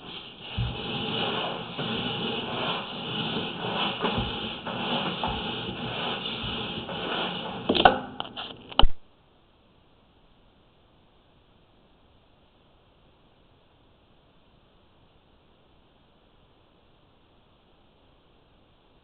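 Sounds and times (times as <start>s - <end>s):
cable scraping through pipe: 0.0s - 8.8s.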